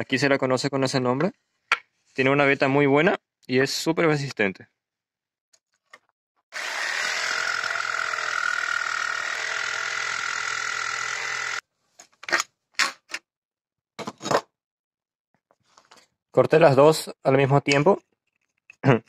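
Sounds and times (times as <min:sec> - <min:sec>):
electric jigsaw cutting wood: 0:06.5 - 0:11.6.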